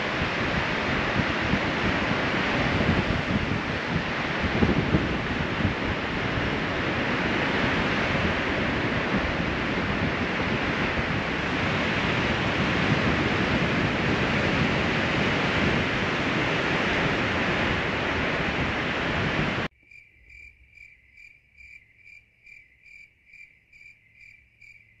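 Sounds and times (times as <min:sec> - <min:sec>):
surf rushing: 0:00.0 - 0:19.7
wind: 0:00.0 - 0:25.0
cricket chirping: 0:19.7 - 0:25.0.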